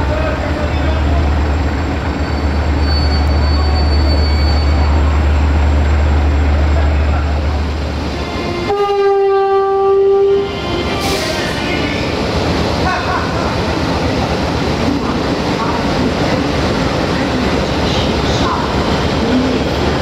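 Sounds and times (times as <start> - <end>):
locomotive diesel engine drone: 0.0 - 8.8
locomotive horn blast: 8.1 - 11.6.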